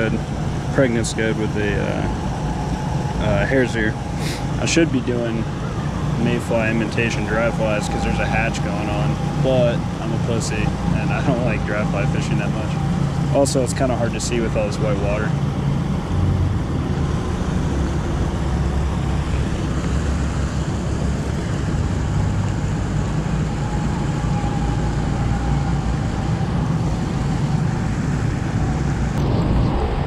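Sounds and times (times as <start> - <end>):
low rumble: 0.7 - 30.0.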